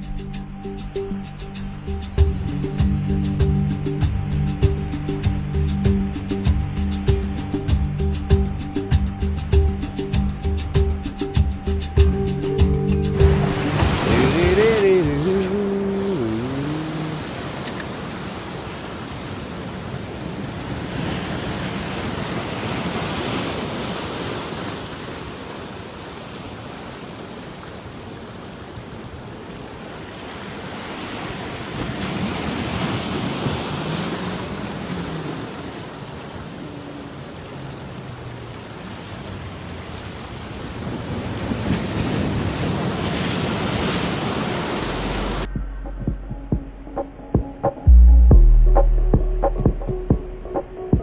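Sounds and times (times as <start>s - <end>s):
surf breaking over rocks: 13.2s - 45.5s.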